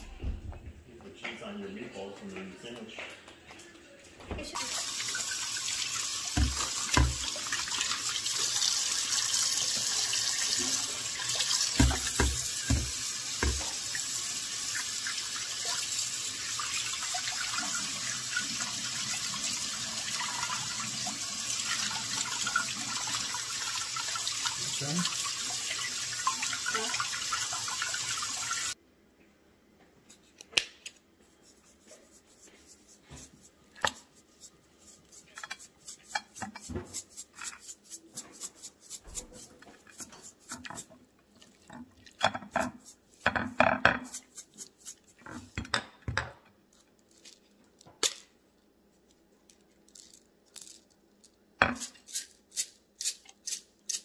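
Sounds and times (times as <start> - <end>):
tap running into steel sink: 6.3 - 7.3, 11.8 - 13.8.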